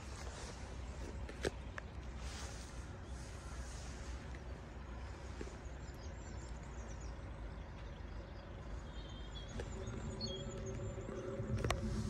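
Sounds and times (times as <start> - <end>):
road traffic rumble: 0.0 - 12.0
faint bird chirps: 2.8 - 11.8
steady multi-pitched hum: 8.7 - 12.0.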